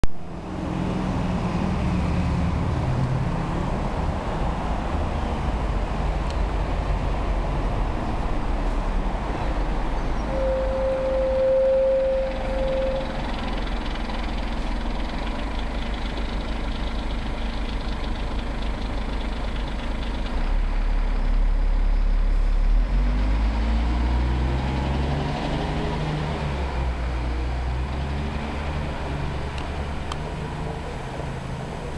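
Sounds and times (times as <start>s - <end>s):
low traffic rumble: 0.0s - 31.9s
vehicle engine running: 0.0s - 31.9s
vehicle accelerating through gears: 0.2s - 14.7s, 20.4s - 31.9s
brief steady tone: 10.2s - 13.7s.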